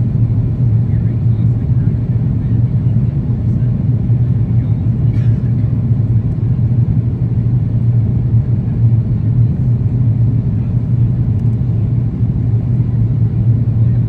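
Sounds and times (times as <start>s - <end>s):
jet cabin engine rumble: 0.0s - 14.0s.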